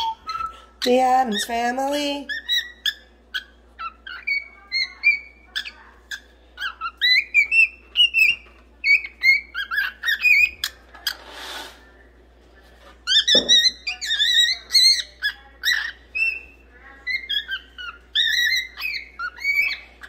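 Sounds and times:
cockatiel whistling: 0.0s - 1.5s.

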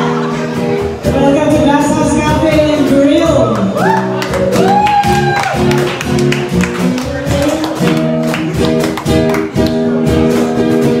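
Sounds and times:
woman singing: 0.0s - 3.8s
strummed acoustic guitar: 0.0s - 11.0s
cajon beat: 0.5s - 11.0s.

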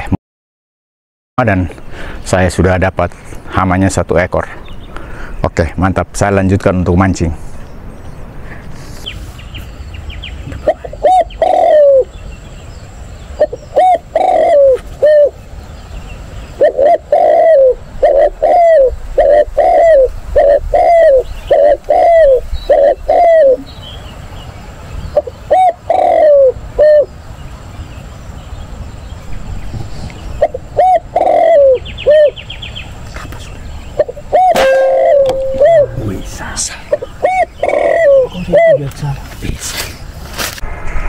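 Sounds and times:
dove cooing: 10.4s - 12.2s, 13.4s - 15.4s, 16.6s - 23.7s, 25.2s - 27.1s, 29.4s - 32.6s, 34.0s - 39.0s.

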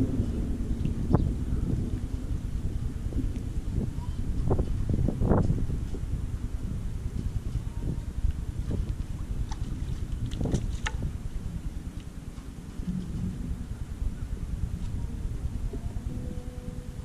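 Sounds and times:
wind buffeting microphone: 0.0s - 17.0s
water splashing: 7.5s - 16.3s.

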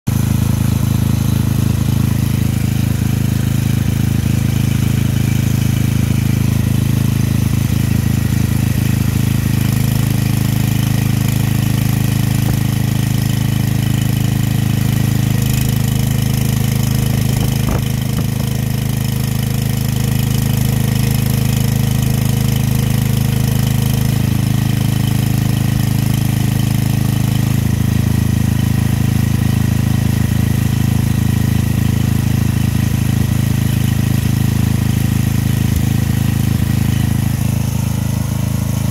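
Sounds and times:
portable generator running: 0.1s - 22.5s, 32.9s - 38.9s.

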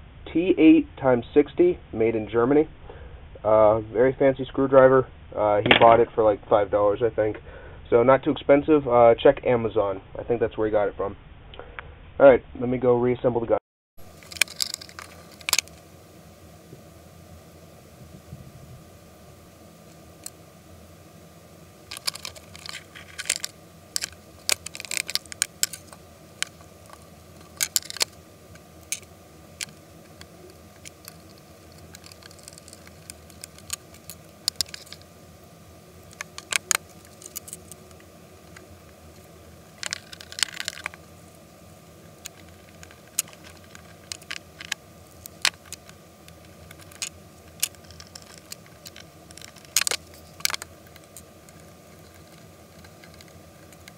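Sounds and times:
faint steady hum: 0.0s - 53.9s
clicks and clatter of gun parts: 14.2s - 15.8s, 21.9s - 28.2s, 28.9s - 35.0s, 39.8s - 41.0s, 46.6s - 53.9s.

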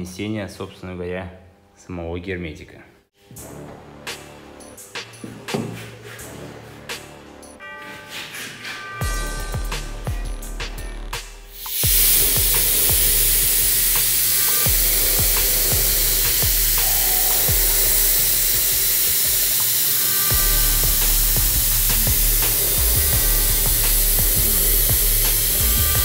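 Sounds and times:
pneumatic sealer gun hissing: 11.5s - 26.0s.

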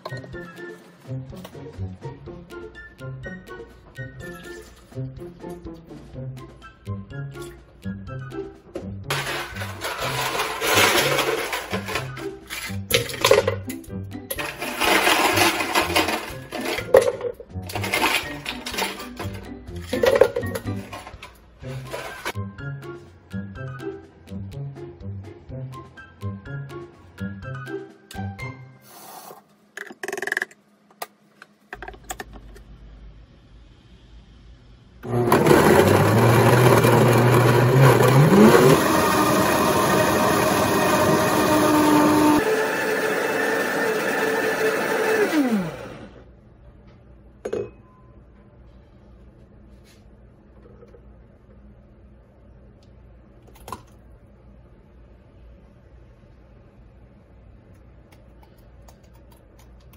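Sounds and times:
background music: 0.0s - 28.9s, 35.1s - 46.1s
ice cubes clinking into blender jar: 9.1s - 12.1s, 14.3s - 19.3s
blender chopping frozen fruit: 9.1s - 12.2s, 14.4s - 16.9s, 35.0s - 46.2s
blender motor whirring: 14.4s - 16.8s, 35.0s - 46.2s.

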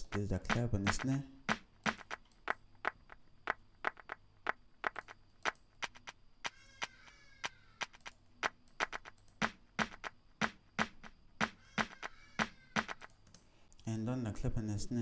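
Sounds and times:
clap and snare drum pattern: 0.0s - 6.1s, 7.8s - 13.1s.

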